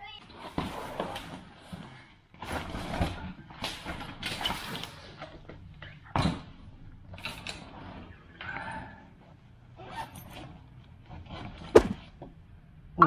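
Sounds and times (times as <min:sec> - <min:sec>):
bag thumping on wooden floor: 0:11.8 - 0:12.1.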